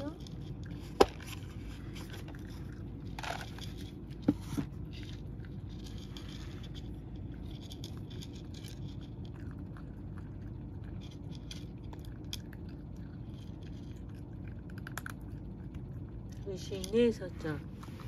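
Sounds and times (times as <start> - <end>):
cat crunching dry kibble: 0.0 - 18.0.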